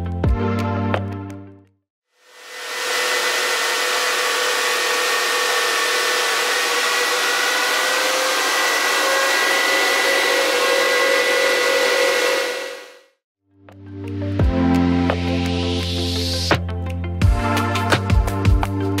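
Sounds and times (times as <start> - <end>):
cooling fans rushing with whine: 2.3 - 12.9.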